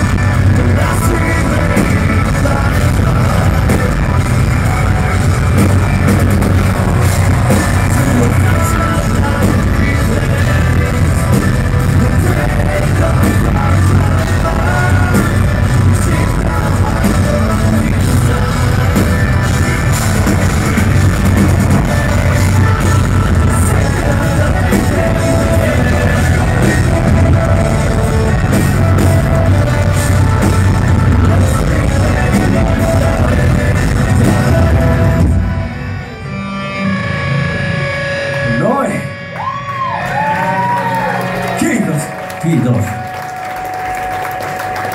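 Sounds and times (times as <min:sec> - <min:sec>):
man singing: 0:00.0 - 0:35.7
live rock band: 0:00.0 - 0:44.9.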